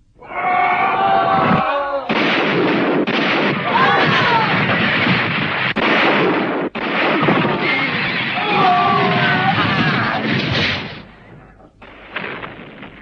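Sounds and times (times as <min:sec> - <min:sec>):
voices shouting: 0:00.2 - 0:02.1, 0:03.6 - 0:05.0, 0:07.8 - 0:10.4
cartoon explosions: 0:00.3 - 0:13.0
cartoon gunfire: 0:02.1 - 0:11.1, 0:11.8 - 0:13.0.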